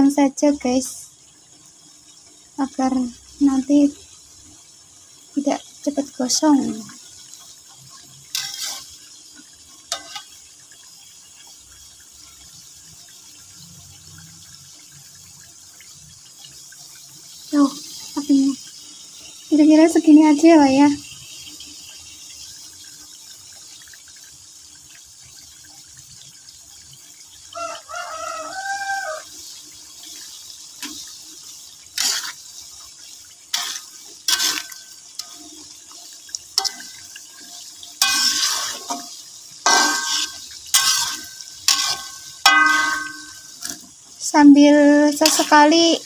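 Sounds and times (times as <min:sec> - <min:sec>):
peanuts sizzling in hot oil: 0:00.0 - 0:46.0
spatula scraping a wok: 0:07.0 - 0:10.5, 0:28.7 - 0:43.9, 0:45.0 - 0:46.0.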